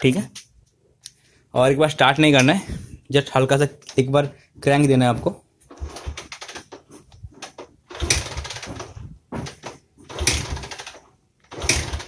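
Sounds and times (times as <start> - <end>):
motorcycle engine kick-start turnover: 7.4 - 12.0.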